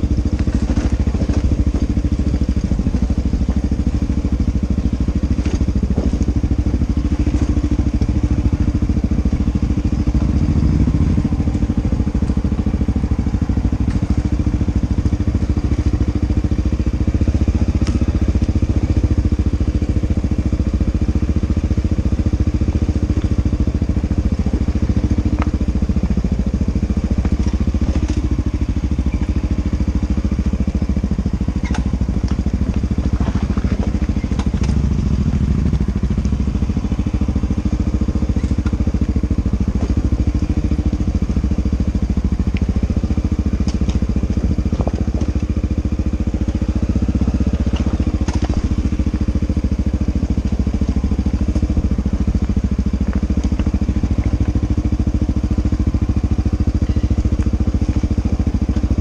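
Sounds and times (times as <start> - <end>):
dirt bike engine running: 0.0 - 59.0
bike knocking over stones: 47.6 - 49.0.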